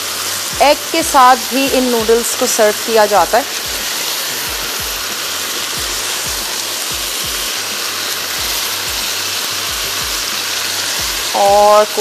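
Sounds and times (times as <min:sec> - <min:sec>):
noodles sizzling in a pan: 0:00.0 - 0:12.0
background music with beat: 0:03.6 - 0:11.4.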